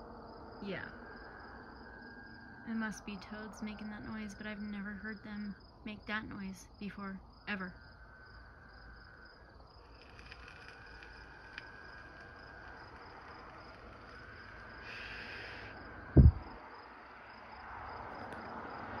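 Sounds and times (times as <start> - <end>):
high insect trill: 0.0 - 19.0
low thump: 16.2 - 16.5.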